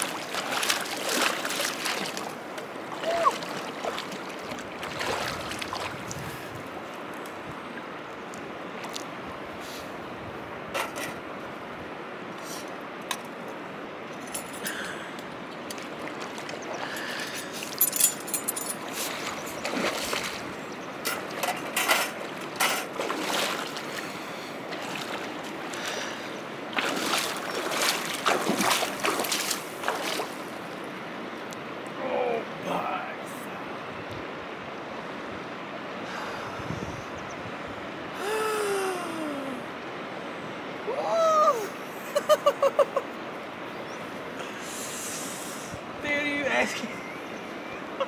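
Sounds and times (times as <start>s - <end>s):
feet wading and splashing in water: 0.0s - 7.2s, 15.5s - 30.9s
shallow river flowing: 0.0s - 48.0s.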